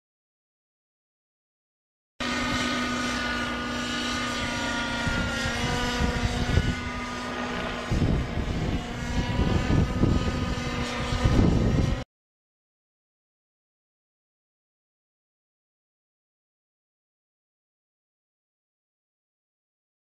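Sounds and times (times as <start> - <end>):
low rumble gusts: 2.2 - 12.0
model helicopter engine whine: 2.2 - 12.1.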